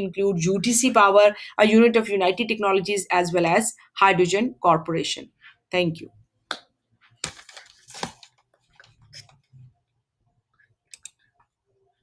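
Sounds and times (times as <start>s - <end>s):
handling rustle: 7.2s - 9.3s
computer mouse clicks: 10.9s - 11.5s.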